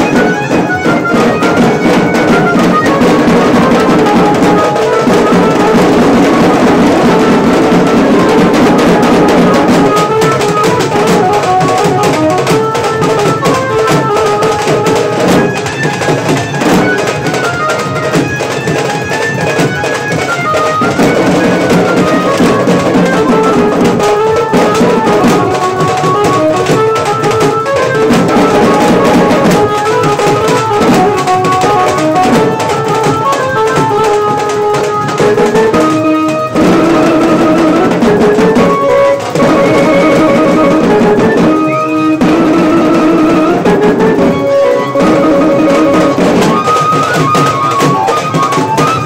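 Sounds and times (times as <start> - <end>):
drums beating fast rhythm: 0.0 - 49.0
wind or keyboard melody: 0.0 - 49.0.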